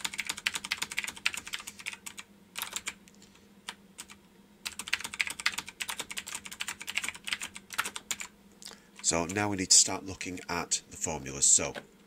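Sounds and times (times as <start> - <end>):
computer keyboard typing: 0.0 - 3.0, 3.7 - 8.3.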